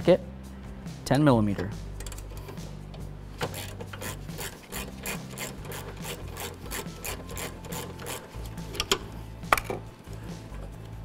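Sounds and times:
ratchet pawl clicking: 0:03.5 - 0:08.9.

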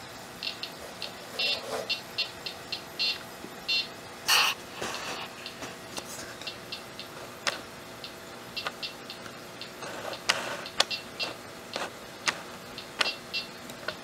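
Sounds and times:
high buzzy chirps: 0:00.3 - 0:05.6, 0:06.4 - 0:11.9, 0:12.7 - 0:13.6
sharp clicks: 0:05.5 - 0:14.0.

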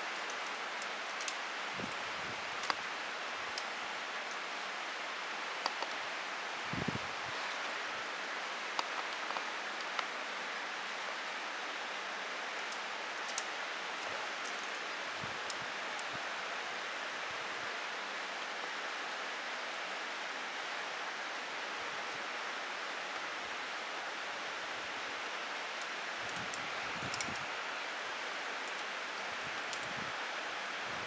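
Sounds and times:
faint sharp clicks: 0:05.6 - 0:06.0.

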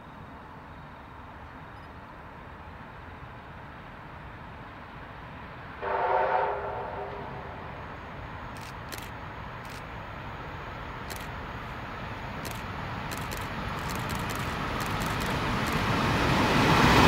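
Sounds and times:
distant train horn blast: 0:05.8 - 0:07.7.

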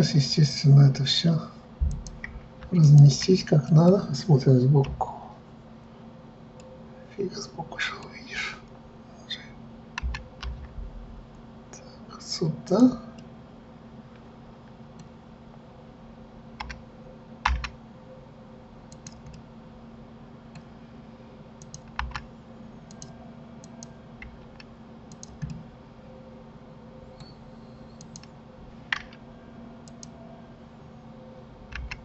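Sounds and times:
faint steady hum: 0:00.0 - 0:32.0
computer keyboard clicks: 0:01.9 - 0:03.3, 0:10.0 - 0:10.7, 0:16.6 - 0:16.8, 0:17.4 - 0:17.8, 0:18.9 - 0:19.4, 0:21.6 - 0:22.3, 0:22.9 - 0:25.6, 0:28.0 - 0:28.3, 0:29.8 - 0:30.2, 0:31.7 - 0:32.0
mouse clicks: 0:18.9 - 0:19.4, 0:21.6 - 0:22.2, 0:22.9 - 0:23.9, 0:24.6 - 0:25.6, 0:28.0 - 0:28.3, 0:29.8 - 0:30.2.

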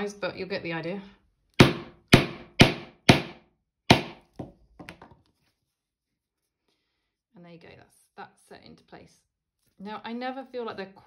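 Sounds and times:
mallet striking metal tool: 0:01.6 - 0:04.2.

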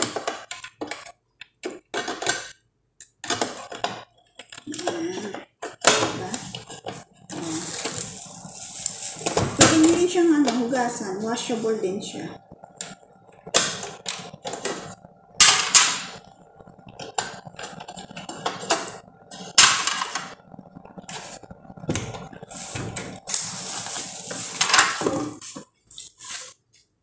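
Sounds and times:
plates clicking and clattering: 0:24.4 - 0:25.4.

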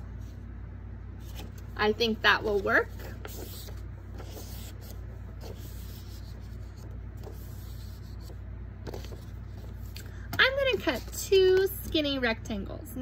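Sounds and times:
steady low hum: 0:00.0 - 0:13.0
paper rubbing and rustling: 0:02.4 - 0:11.2.

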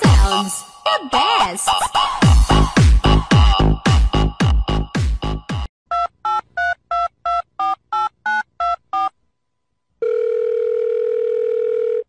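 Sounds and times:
steady telephone line tone: 0:10.0 - 0:12.0.

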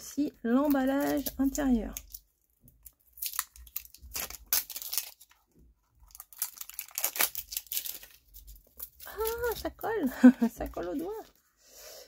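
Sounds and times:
packaging tearing and crinkling: 0:00.6 - 0:10.1.

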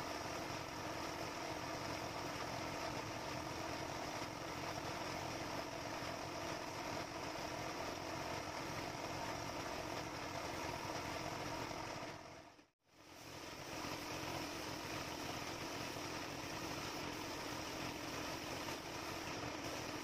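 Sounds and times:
air compressor motor hum: 0:00.0 - 0:20.0
air hissing: 0:13.0 - 0:20.0.

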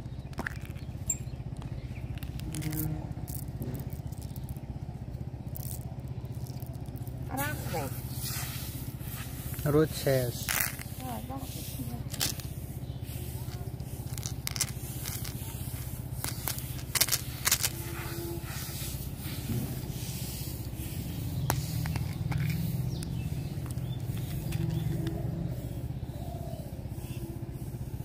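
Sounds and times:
steady low hum: 0:00.0 - 0:28.0
plastic scraping: 0:13.5 - 0:18.0.

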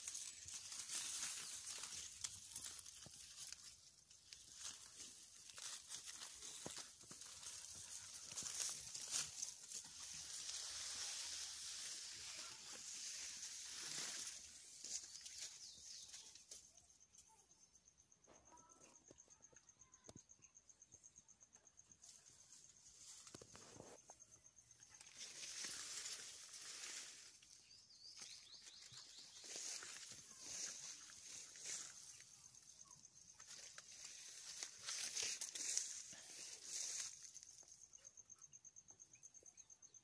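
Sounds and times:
foliage rustling: 0:00.0 - 0:16.5, 0:24.8 - 0:37.7
high-pitched insect trill: 0:00.0 - 0:40.0.

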